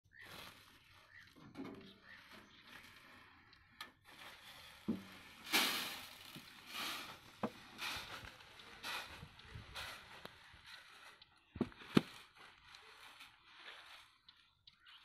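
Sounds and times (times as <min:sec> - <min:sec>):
plastic sack rustling: 0:00.1 - 0:01.4, 0:04.0 - 0:14.2
grain pouring: 0:04.1 - 0:08.4.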